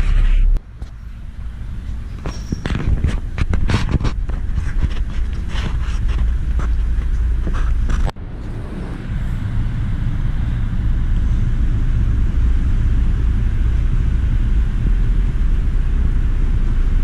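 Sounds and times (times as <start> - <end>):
camera handling rumble: 2.2 - 8.1.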